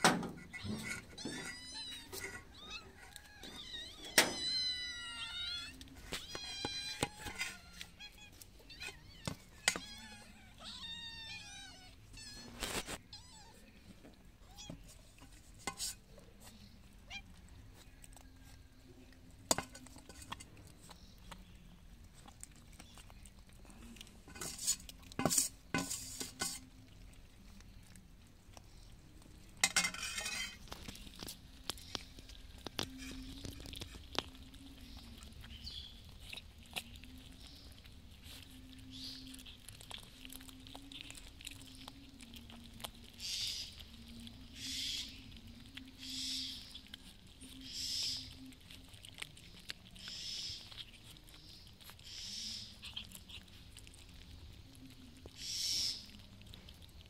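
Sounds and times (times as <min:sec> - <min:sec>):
cats meowing: 0:00.0 - 0:15.4, 0:16.3 - 0:19.0, 0:29.7 - 0:56.8
cats eating with clinks: 0:00.0 - 0:57.0
metal ladle clanking on pot: 0:29.6 - 0:30.6.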